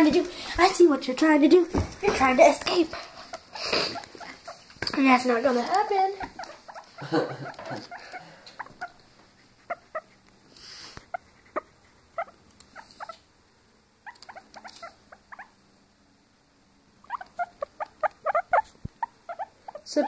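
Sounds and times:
guinea pig squeaking: 0:03.3 - 0:10.2, 0:11.1 - 0:13.2, 0:14.0 - 0:15.6, 0:17.0 - 0:20.0.

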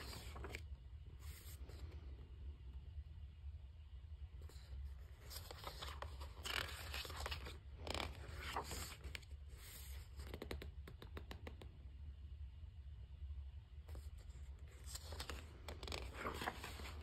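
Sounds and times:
paper pages turning: 0:00.0 - 0:02.0, 0:04.5 - 0:11.0, 0:13.9 - 0:17.0.

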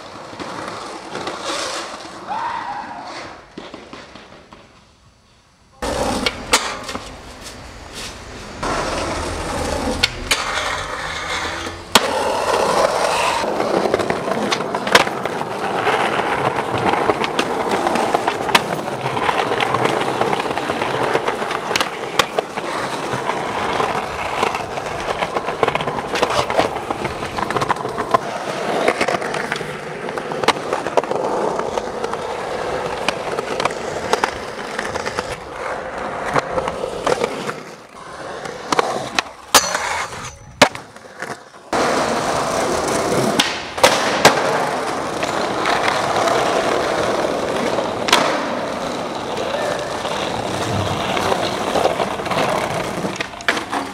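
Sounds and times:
skateboard wheels rolling on pavement: 0:00.0 - 0:53.9
skateboard clacking on ground: 0:03.1 - 0:04.9, 0:05.8 - 0:53.9.

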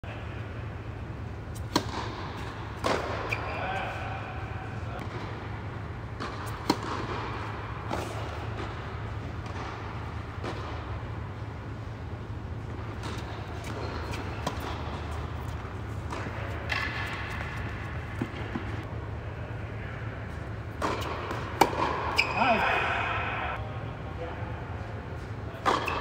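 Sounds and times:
steady low hum: 0:00.0 - 0:26.0
tennis balls struck and bouncing: 0:01.4 - 0:11.6, 0:12.4 - 0:18.9, 0:20.7 - 0:23.6, 0:25.6 - 0:26.0.

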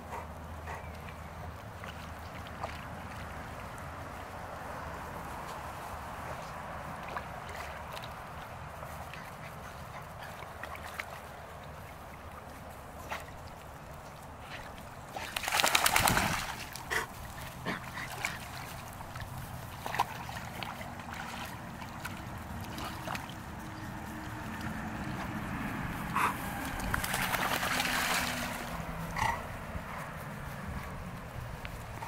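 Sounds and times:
dogs splashing in water: 0:00.0 - 0:32.0
loud splash: 0:15.1 - 0:16.8, 0:26.8 - 0:28.8.

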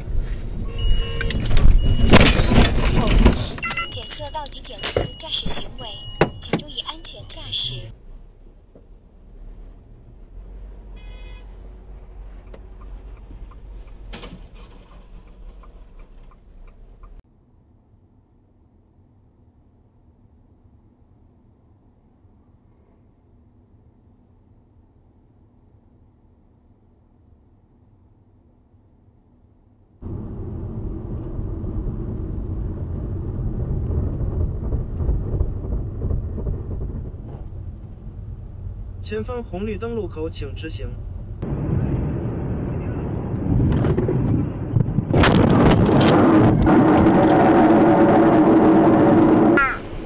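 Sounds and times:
car interior rumble: 0:00.0 - 0:17.2, 0:30.0 - 0:50.0
light ticks: 0:12.4 - 0:14.0.

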